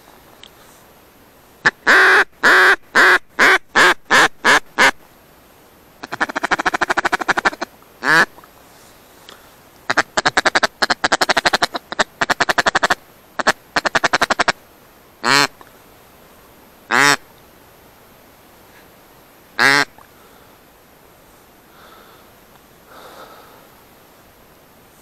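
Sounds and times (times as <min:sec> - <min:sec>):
duck quacking: 0:01.6 - 0:05.0, 0:06.0 - 0:08.4, 0:09.9 - 0:14.6, 0:15.2 - 0:15.6, 0:16.9 - 0:17.2, 0:19.6 - 0:20.0
duck chattering: 0:06.0 - 0:08.3, 0:09.9 - 0:14.6, 0:15.2 - 0:15.6, 0:16.9 - 0:17.2, 0:19.6 - 0:19.9.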